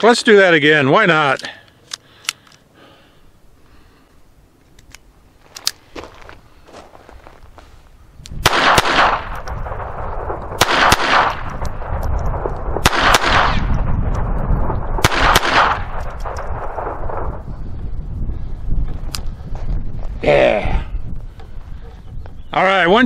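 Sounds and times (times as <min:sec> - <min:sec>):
pistol shots echoing: 0:08.4 - 0:13.8, 0:14.9 - 0:16.9.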